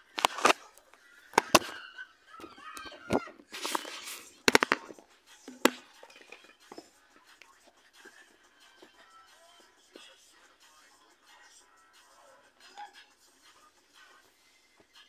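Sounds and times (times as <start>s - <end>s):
rustling noise: 3.2s - 5.0s.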